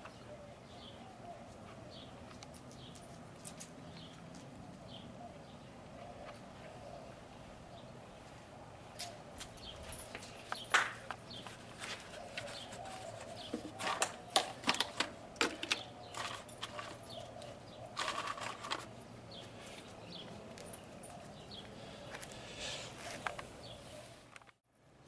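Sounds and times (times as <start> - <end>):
kibble clattering on concrete: 2.3 - 4.6, 13.4 - 18.9.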